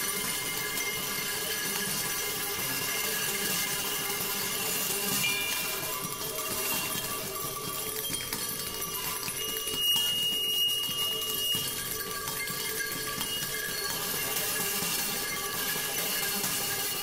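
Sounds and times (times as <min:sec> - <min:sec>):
sustained ringing tones: 0:00.0 - 0:17.0
clear high ringing tone: 0:05.1 - 0:16.9.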